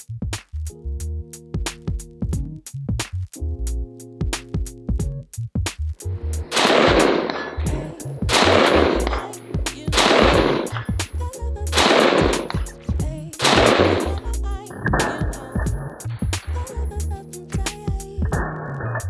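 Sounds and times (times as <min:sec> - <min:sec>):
electronic music with a beat: 0:00.0 - 0:19.0
rifle shots with echo: 0:06.5 - 0:10.8, 0:11.8 - 0:12.7, 0:13.4 - 0:14.2.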